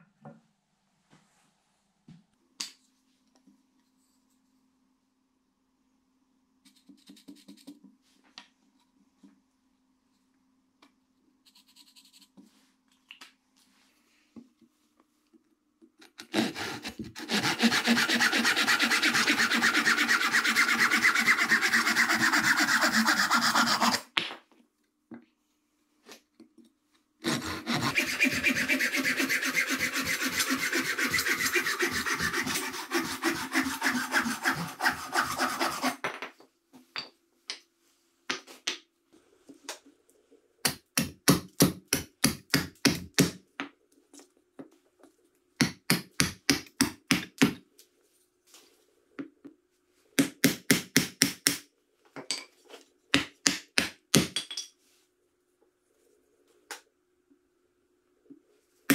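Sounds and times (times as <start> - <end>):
hand saw cutting wood: 16.2 - 24.1, 27.2 - 36.0
hatchet chopping wood: 40.6 - 43.4, 45.6 - 47.6, 50.2 - 51.6, 53.2 - 54.4.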